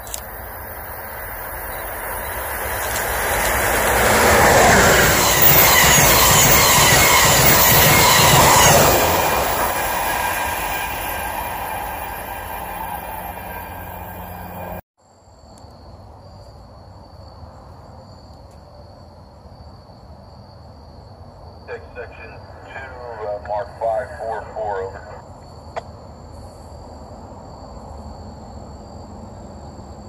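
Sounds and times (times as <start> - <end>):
train passing: 0.3 - 14.8.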